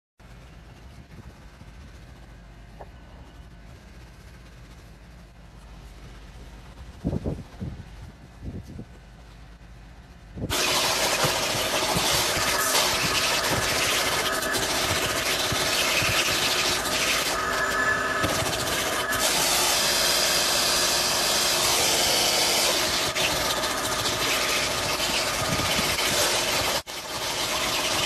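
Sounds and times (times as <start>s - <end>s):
brush scrubbing carpet: 10.5s - 19.9s
vacuum cleaner motor: 10.5s - 28.0s.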